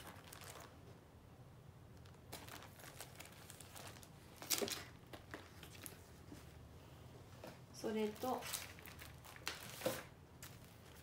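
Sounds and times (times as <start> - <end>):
plastic sheets rustling and crinkling: 0.0 - 0.9, 2.0 - 6.6, 7.8 - 11.0.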